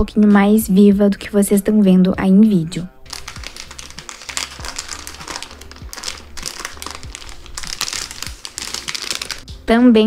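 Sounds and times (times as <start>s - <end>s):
plastic bag crinkling: 3.1s - 9.5s.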